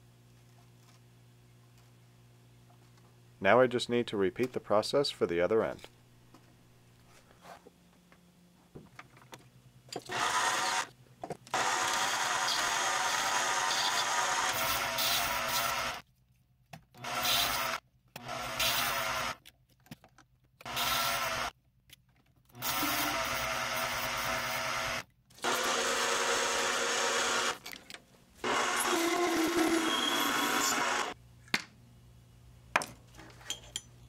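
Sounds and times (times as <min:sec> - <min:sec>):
metal lathe running: 0:28.4 - 0:31.2.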